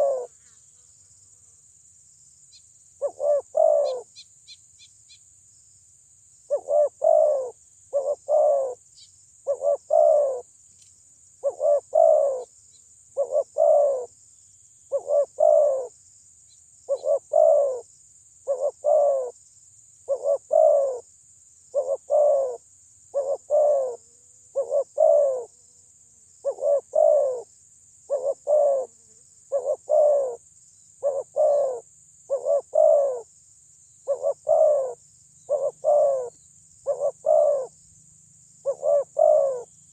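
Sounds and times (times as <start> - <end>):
dove cooing: 0.0 - 0.4, 3.0 - 4.1, 6.5 - 8.8, 9.4 - 10.5, 11.4 - 12.5, 13.2 - 14.1, 14.9 - 15.9, 16.9 - 17.8, 18.5 - 19.4, 20.1 - 21.0, 21.8 - 25.5, 26.4 - 27.5, 28.1 - 30.4, 31.0 - 33.3, 34.1 - 37.8, 38.6 - 39.7.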